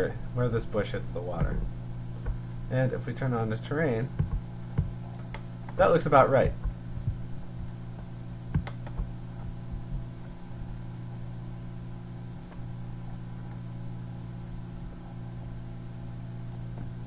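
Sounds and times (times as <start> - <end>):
steady low hum: 0.0 - 17.0
mouse clicks and scroll-wheel ticks: 4.2 - 5.8, 8.0 - 10.1, 11.7 - 13.6.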